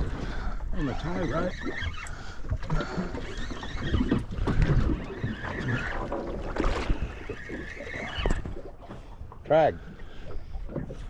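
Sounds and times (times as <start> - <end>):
water against boat: 0.0 - 11.0.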